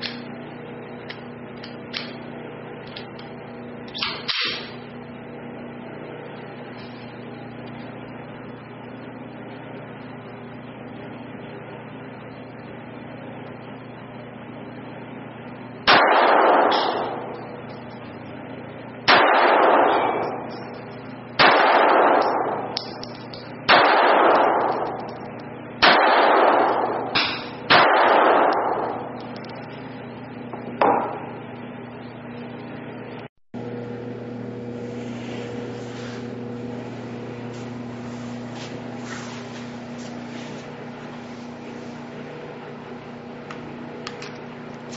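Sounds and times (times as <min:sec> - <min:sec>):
steady hum: 0:00.0 - 0:44.9
pistol shots echoing: 0:15.9 - 0:17.4, 0:19.1 - 0:20.4, 0:21.4 - 0:23.0, 0:23.7 - 0:25.1, 0:25.8 - 0:29.2.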